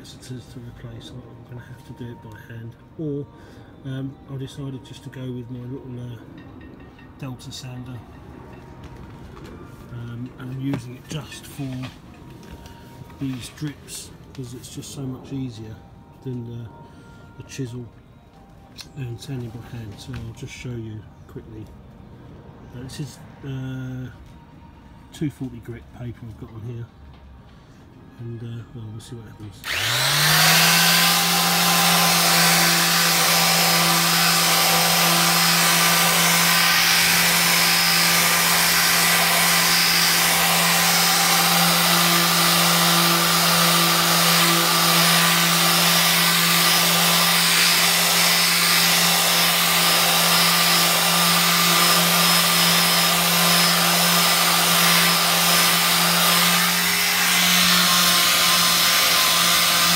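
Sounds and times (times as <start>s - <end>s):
electric sander running: 29.6s - 59.9s.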